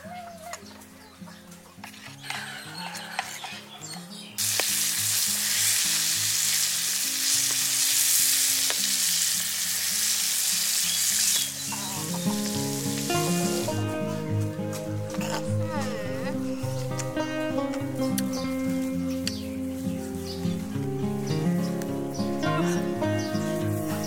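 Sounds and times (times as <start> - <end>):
eggs deep-frying in hot oil: 4.4 - 13.2.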